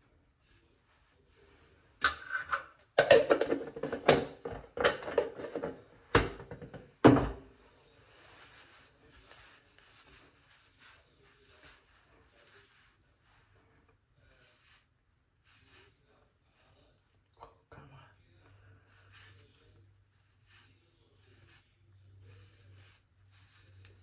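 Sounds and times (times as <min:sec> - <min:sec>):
hard objects knocking and clattering: 0:02.0 - 0:07.5.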